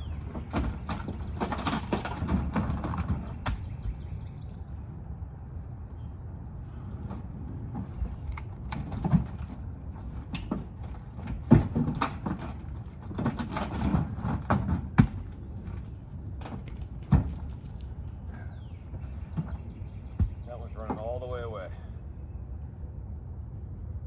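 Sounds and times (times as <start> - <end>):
logs knocking and thudding: 0.0 - 4.0, 7.0 - 18.0, 19.0 - 21.4.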